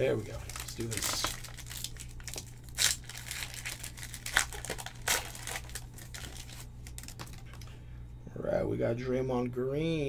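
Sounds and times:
steady low hum: 0:00.0 - 0:10.0
foil wrapper crinkling: 0:00.1 - 0:07.7.

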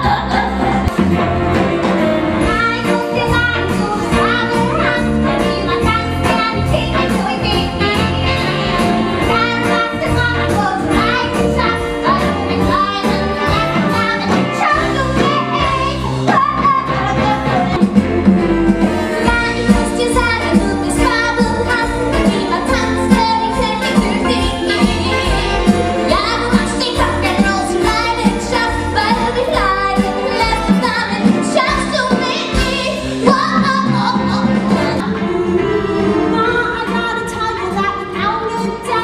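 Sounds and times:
women singing: 0:00.0 - 0:00.9, 0:02.4 - 0:17.8, 0:19.2 - 0:39.0
band playing steady beat: 0:00.0 - 0:38.8.

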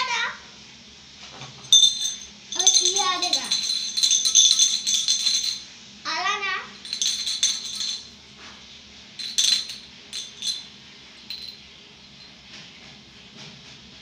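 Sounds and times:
glass bottle clinking: 0:01.6 - 0:05.6, 0:06.8 - 0:08.1, 0:09.2 - 0:11.6.

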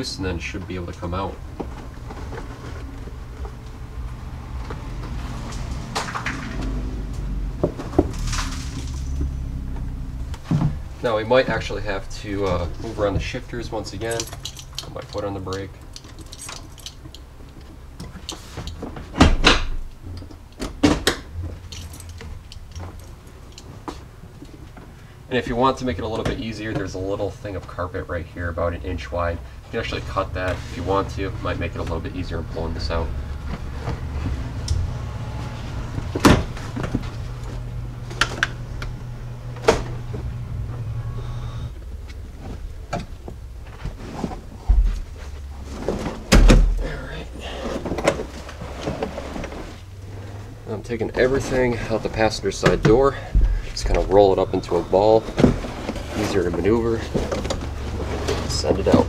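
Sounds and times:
steady low hum: 0:00.0 - 0:59.0
carpet rustling pulls: 0:41.8 - 0:59.0.

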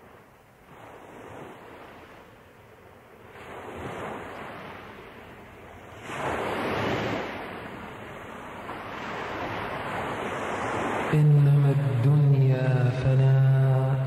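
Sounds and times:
ocean waves washing in: 0:00.0 - 0:14.0.

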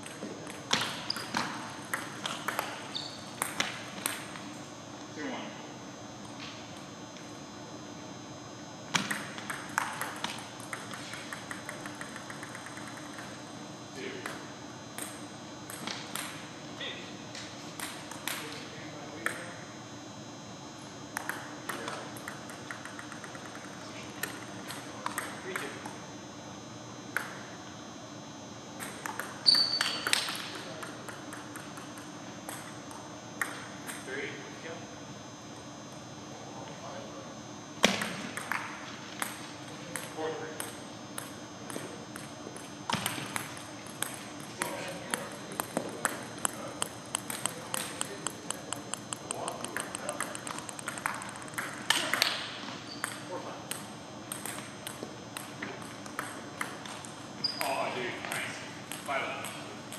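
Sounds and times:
table tennis ball hitting bats: 0:00.0 - 0:04.4, 0:08.9 - 0:13.4, 0:15.0 - 0:16.4, 0:17.8 - 0:18.5, 0:21.2 - 0:25.9, 0:28.8 - 0:34.1, 0:37.8 - 0:59.9.

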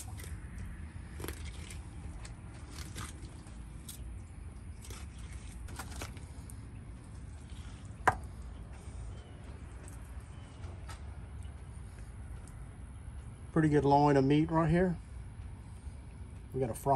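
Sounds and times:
steady low rumble: 0:00.0 - 0:16.9
knife cutting and scraping hide: 0:01.1 - 0:04.0, 0:04.8 - 0:06.4.

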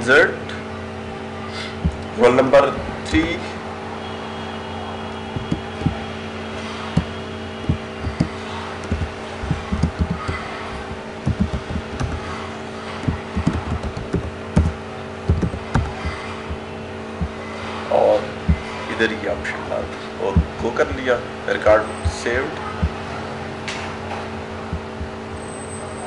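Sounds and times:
steady background hum: 0:00.0 - 0:26.0
keyboard typing clicks: 0:07.7 - 0:12.2, 0:13.0 - 0:16.6.

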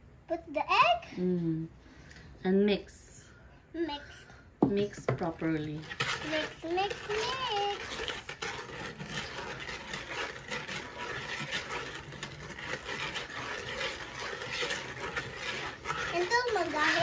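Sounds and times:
whisk scraping plastic bowl: 0:04.7 - 0:17.0.

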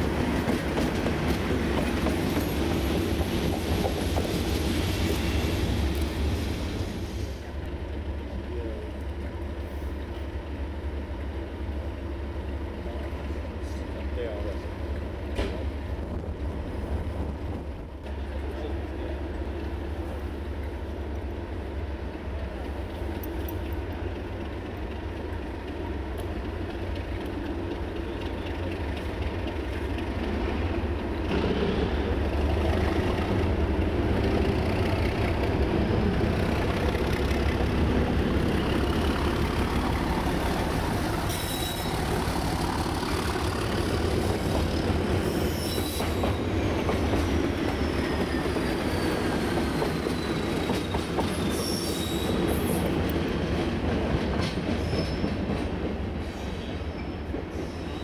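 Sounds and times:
diesel locomotive engine running: 0:00.0 - 0:45.6
wheels squealing on rails: 0:27.9 - 0:53.6, 0:54.4 - 0:58.0.

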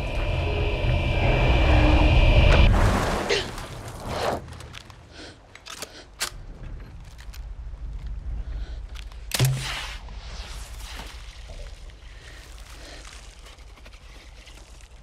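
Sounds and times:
low rumble of sea: 0:00.0 - 0:04.6
water splashing: 0:02.6 - 0:04.6.

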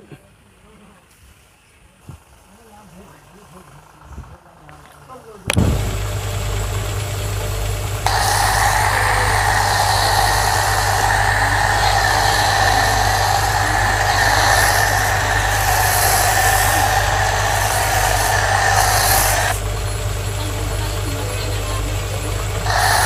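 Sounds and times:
pressure washer motor humming: 0:05.6 - 0:23.0
foam lance spraying hiss: 0:08.0 - 0:19.6, 0:22.6 - 0:23.0.

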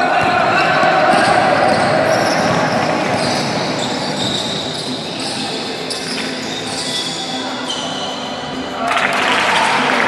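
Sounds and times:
players running on hard court: 0:00.0 - 0:05.4.

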